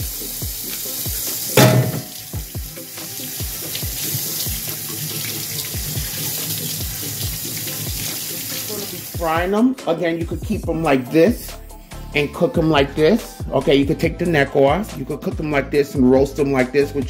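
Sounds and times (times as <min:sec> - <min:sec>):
tap running into steel sink: 0:01.5 - 0:02.4
shears clattering into sink: 0:01.6 - 0:02.2.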